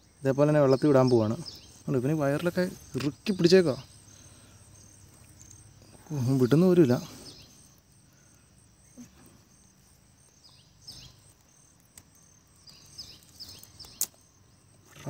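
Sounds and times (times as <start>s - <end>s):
insects chirping: 0.0s - 15.0s
fishing net rustling and clicking: 11.2s - 15.0s.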